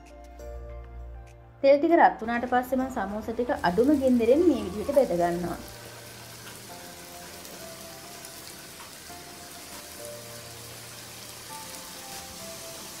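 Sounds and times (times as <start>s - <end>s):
soft background music: 0.0s - 13.0s
oil bubbling and sizzling: 3.2s - 13.0s.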